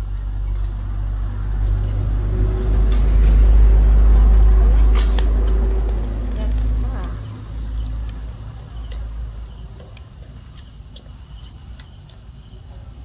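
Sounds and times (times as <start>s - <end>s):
vehicle engine rumbling: 0.0s - 13.0s
sharp clicks: 9.8s - 13.0s.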